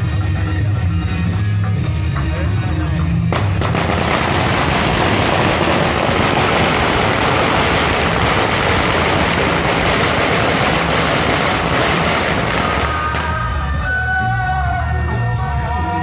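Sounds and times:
firecrackers crackling: 0:03.3 - 0:13.8
sharp crack: 0:03.4 - 0:13.6.

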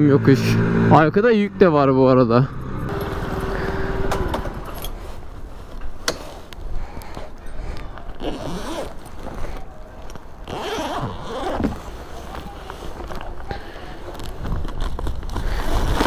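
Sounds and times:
zipper being pulled open: 0:08.1 - 0:09.8, 0:10.4 - 0:16.0.

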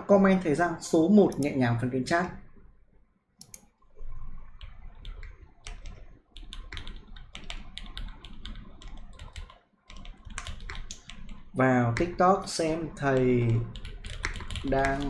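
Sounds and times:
keyboard typing: 0:03.4 - 0:15.0.

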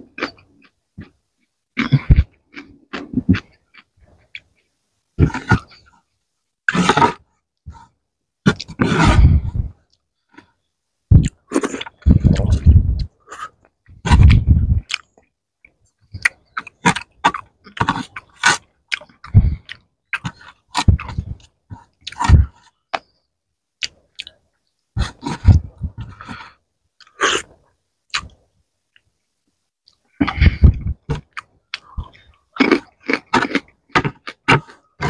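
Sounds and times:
chewing and mouth smacking: 0:11.2 - 0:23.1, 0:23.8 - 0:26.4, 0:27.0 - 0:29.1, 0:29.8 - 0:35.0.

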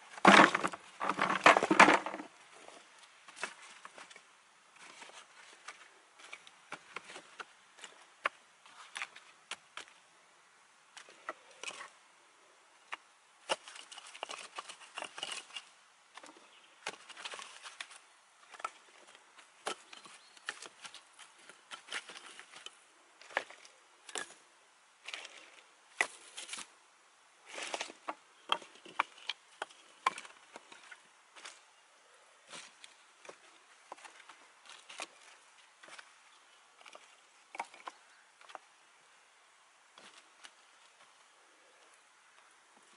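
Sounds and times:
rustling twigs and dry grass: 0:00.0 - 0:10.2, 0:10.8 - 0:42.9
dry sticks knocking together: 0:27.6 - 0:31.6.

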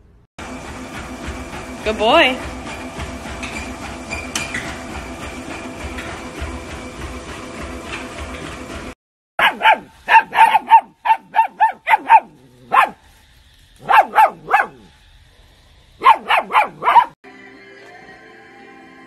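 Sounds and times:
puppies barking: 0:09.4 - 0:13.0, 0:13.8 - 0:14.9, 0:16.0 - 0:17.2
background music: 0:17.3 - 0:19.0.

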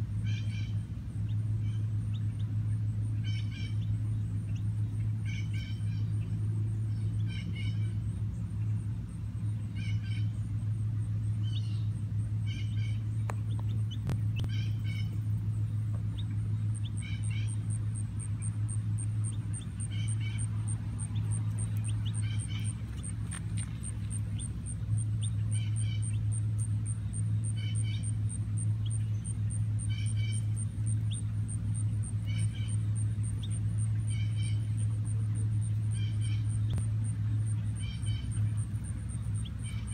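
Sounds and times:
steady low hum: 0:00.0 - 0:39.9
baby chick peeping: 0:12.4 - 0:15.4, 0:16.0 - 0:39.9.

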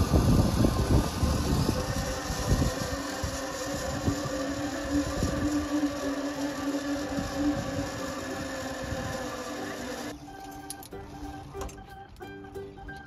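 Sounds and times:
wind rumbling on microphone: 0:00.0 - 0:09.4
zipline pulleys whirring on cable: 0:00.0 - 0:12.3.

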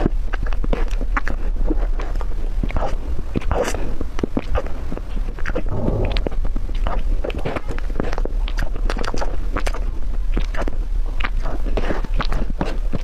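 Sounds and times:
mouth chewing soft cake: 0:00.0 - 0:05.9, 0:07.9 - 0:13.0
low hum: 0:05.5 - 0:08.0.

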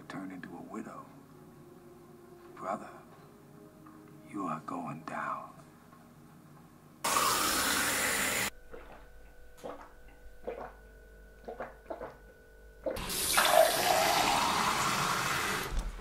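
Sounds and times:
gulps of drinking: 0:11.4 - 0:12.2.

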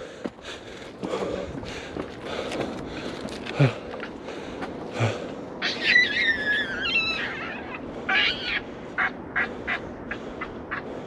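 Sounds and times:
animal squealing calls: 0:05.6 - 0:09.8.

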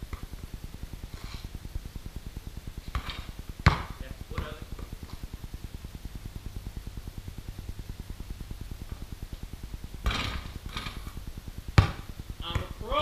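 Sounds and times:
basketball hitting rim and backboard: 0:02.9 - 0:04.9, 0:10.0 - 0:12.8.

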